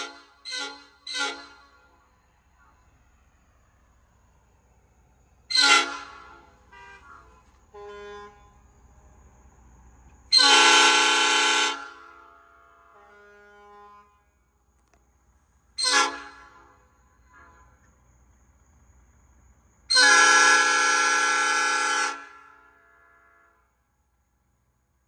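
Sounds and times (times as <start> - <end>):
air horn blasts: 0.0 - 2.7, 5.5 - 8.8, 10.3 - 14.5, 15.8 - 17.9, 19.9 - 23.8.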